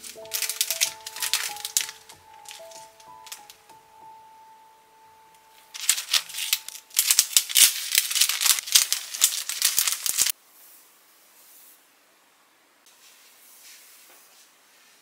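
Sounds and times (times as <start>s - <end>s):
cellophane bag crinkling: 0.0s - 3.7s, 5.5s - 10.3s.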